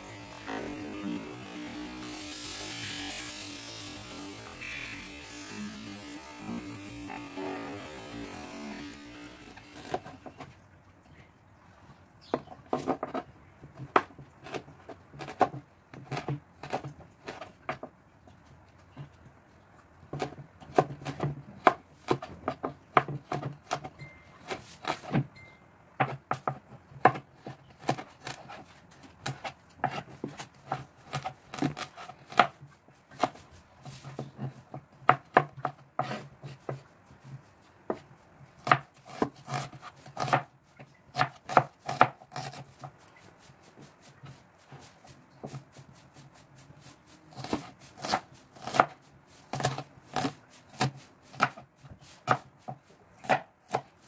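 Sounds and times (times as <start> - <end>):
knife chopping on plastic board: 20.1 - 25.3, 26.0 - 28.6, 29.2 - 32.6, 34.2 - 36.8, 38.6 - 40.5, 41.1 - 42.9, 47.3 - 51.6, 52.2 - 54.0.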